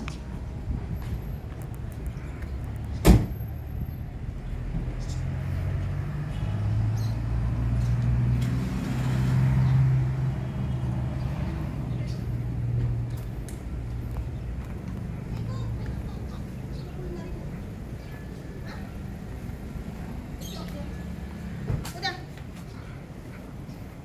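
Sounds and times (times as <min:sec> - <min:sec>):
door slamming shut: 0:03.0 - 0:03.4.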